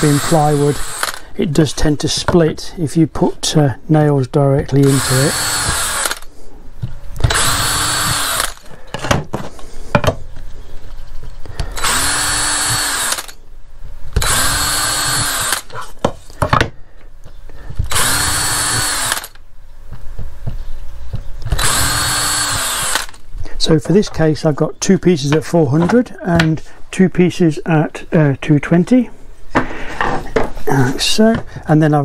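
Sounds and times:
cordless drill motor whine: 0.0 - 1.3, 4.8 - 6.3, 7.2 - 8.7, 11.6 - 13.4, 14.2 - 15.8, 17.9 - 19.4, 21.5 - 23.2
knocks of handling wood: 8.9 - 10.4, 16.0 - 17.9, 29.5 - 30.6.

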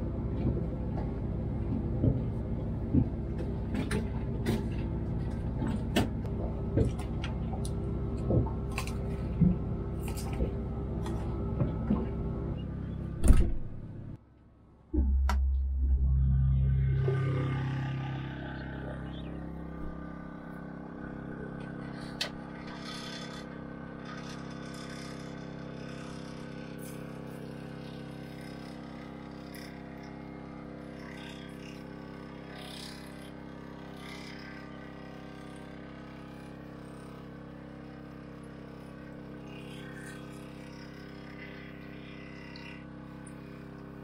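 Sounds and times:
generator humming: 14.8 - 24.0.

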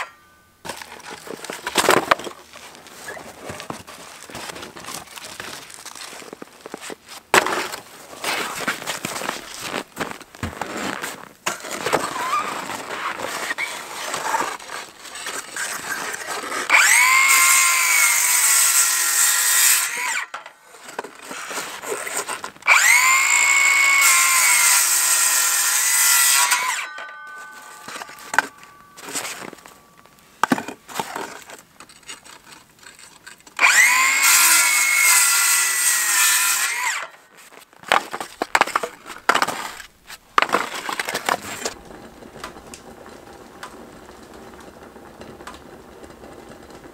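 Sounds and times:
circular saw cutting wood: 12.0 - 29.6, 33.6 - 37.2.

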